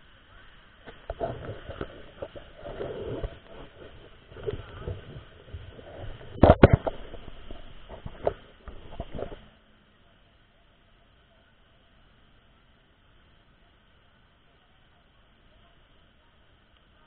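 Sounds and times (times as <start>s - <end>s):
camera handling rubbing and knocks: 1.0s - 9.4s.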